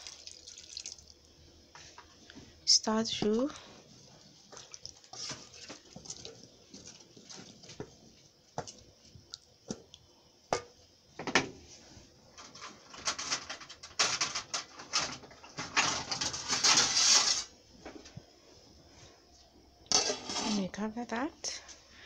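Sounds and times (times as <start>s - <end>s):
stew splashing: 0.0s - 1.2s, 4.0s - 7.7s.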